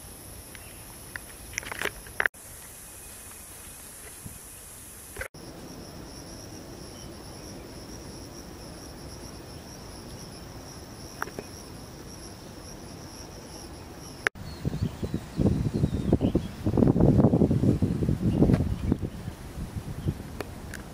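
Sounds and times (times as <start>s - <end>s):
insects droning: 0.0s - 20.9s
wind buffeting microphone: 5.7s - 20.9s.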